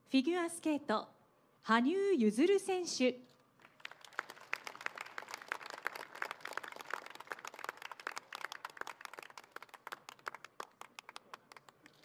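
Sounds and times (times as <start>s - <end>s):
audience clapping: 3.6s - 12.0s.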